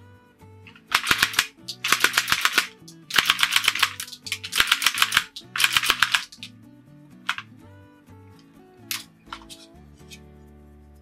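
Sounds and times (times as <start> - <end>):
rubber band gun clacking: 0.7 - 6.5, 7.3 - 7.5.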